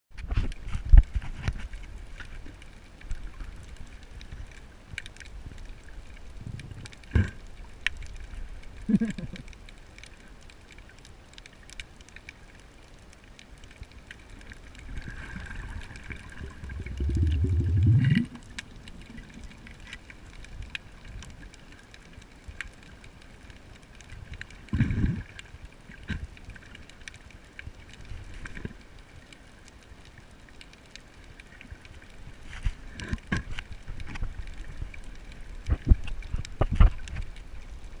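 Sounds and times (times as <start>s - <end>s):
muffled underwater rumble: 0.2s - 10.0s, 13.8s - 26.6s
small underwater clicks: 0.2s - 38.0s
muffled low sound: 16.4s - 18.6s.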